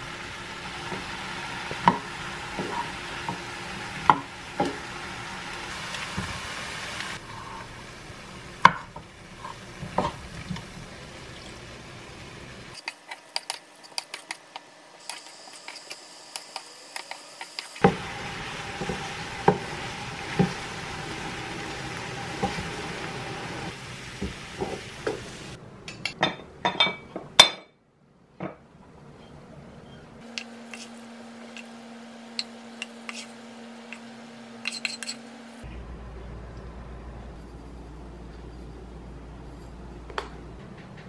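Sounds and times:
food sizzling in a frying pan: 0:00.0 - 0:14.3, 0:15.0 - 0:25.6
wooden spoon knocking on pan: 0:01.7 - 0:03.4, 0:18.8 - 0:19.7.

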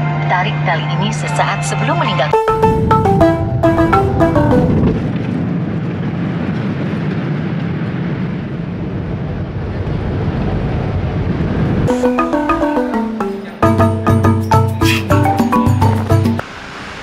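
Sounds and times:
music: 0:00.2 - 0:05.1, 0:11.9 - 0:16.4.

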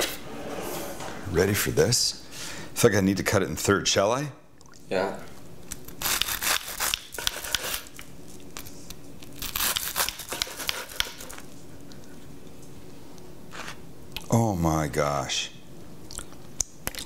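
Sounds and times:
knife sawing through toasted crust: 0:09.6 - 0:11.1.

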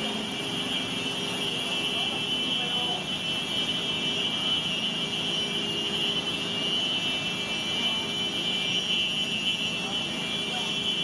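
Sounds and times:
alarm steady high tone: 0:00.0 - 0:11.0
floodwater rushing roar: 0:00.0 - 0:11.0.

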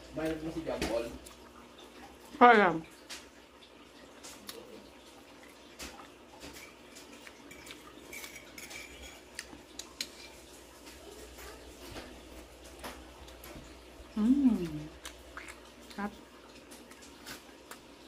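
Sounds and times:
cutlery clinking on a plate: 0:06.4 - 0:10.2.

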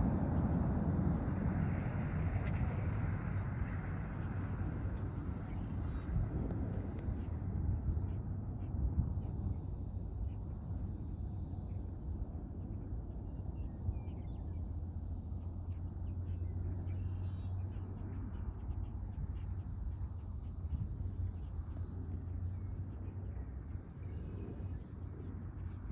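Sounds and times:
insects chirping: 0:00.0 - 0:25.9
low steady rumble: 0:00.0 - 0:25.9.

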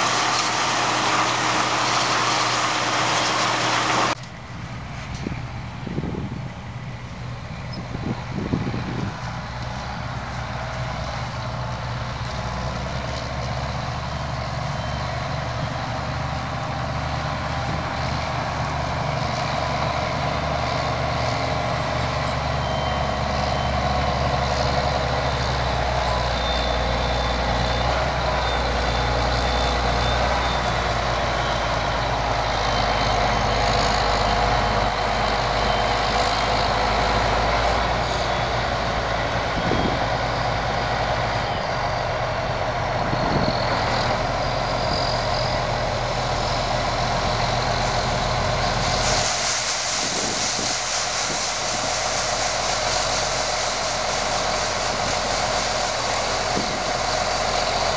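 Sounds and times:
unloading auger conveying grain: 0:00.0 - 0:04.4, 0:45.0 - 0:57.9
tractor engine droning: 0:00.0 - 0:57.9.

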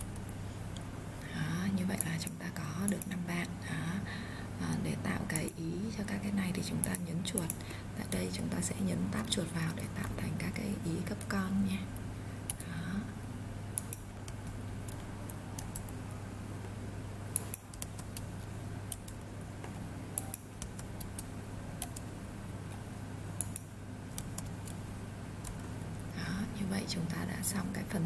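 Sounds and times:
mouse and keyboard clicks: 0:13.8 - 0:16.0, 0:17.3 - 0:22.1, 0:23.4 - 0:25.7.

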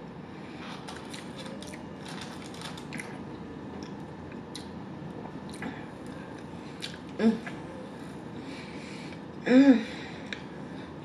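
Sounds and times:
chewing and food handling: 0:00.6 - 0:07.6.

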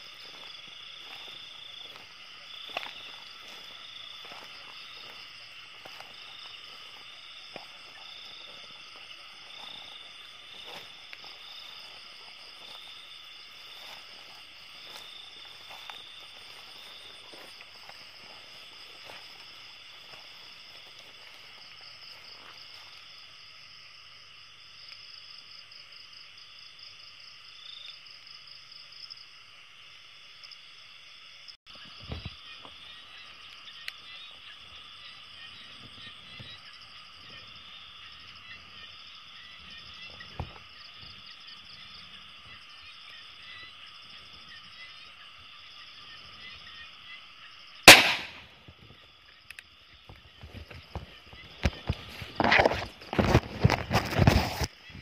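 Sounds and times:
rustles through wet grass: 0:00.0 - 0:23.4, 0:50.2 - 0:55.0
frogs calling: 0:00.0 - 0:55.0
insects trilling: 0:00.0 - 0:55.0.

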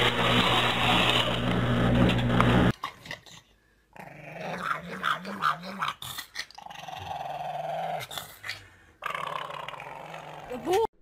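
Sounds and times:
dog growling: 0:03.1 - 0:10.9.

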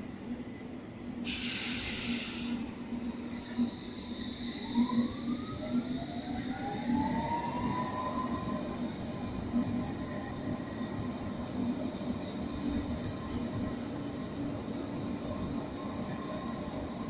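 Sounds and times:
air hiss burst: 0:01.2 - 0:02.7.

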